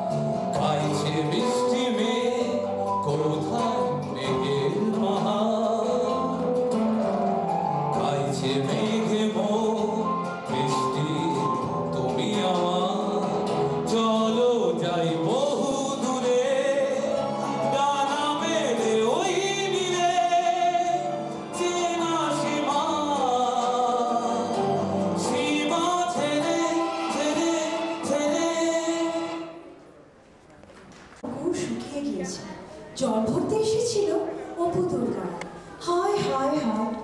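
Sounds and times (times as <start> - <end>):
instrumental backing music: 0.0 - 29.9
man singing into microphone: 0.4 - 6.8, 7.8 - 29.7.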